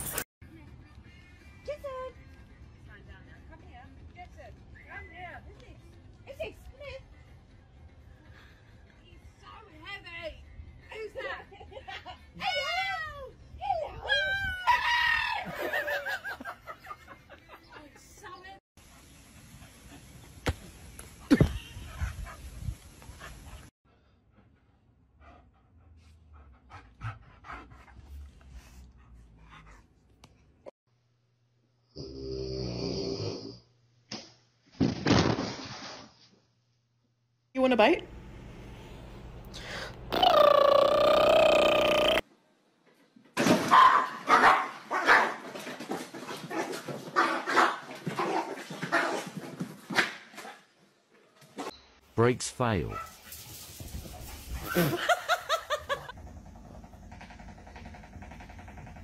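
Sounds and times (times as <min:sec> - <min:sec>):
dog panting faintly: 0:21.9 - 0:30.5
small dog barking: 0:43.7 - 0:45.4, 0:47.2 - 0:49.2, 0:52.9 - 0:53.2.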